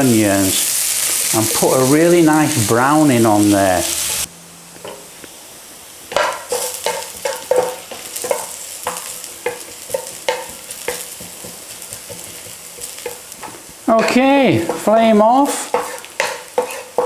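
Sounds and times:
onions sizzling in oil: 0.0s - 17.0s
spatula scraping a pan: 6.1s - 13.6s, 14.6s - 17.0s.

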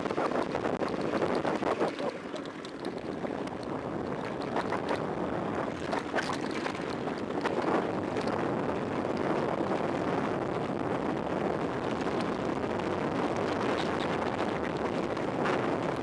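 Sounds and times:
wind rushing over microphone: 0.0s - 16.0s
bike clicks and rattles: 0.1s - 5.0s.

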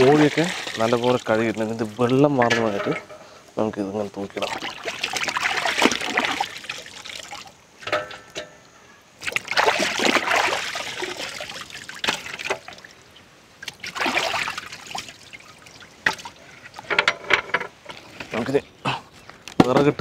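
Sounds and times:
water splashing: 0.0s - 3.1s, 4.2s - 7.6s, 9.2s - 16.9s
water trickling: 0.0s - 7.8s, 9.2s - 17.0s.

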